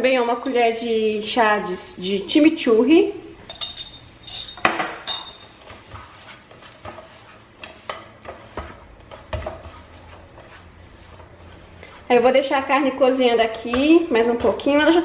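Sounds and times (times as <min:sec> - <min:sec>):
spoon stirring food in a pot: 0:03.4 - 0:15.0
spoon clinking against pan: 0:03.5 - 0:05.6.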